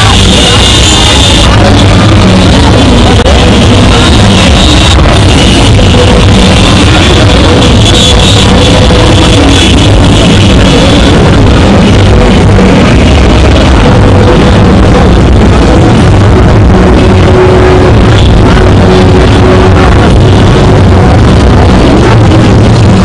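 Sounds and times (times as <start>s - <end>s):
loud music with pounding bass: 0.0s - 23.0s.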